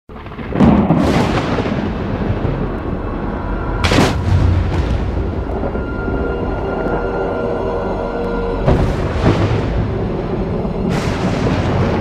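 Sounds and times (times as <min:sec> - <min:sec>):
deep boom: 0:00.2 - 0:07.0, 0:08.6 - 0:12.0
dark music: 0:00.2 - 0:12.0
loud hit: 0:03.8 - 0:06.4, 0:08.6 - 0:12.0.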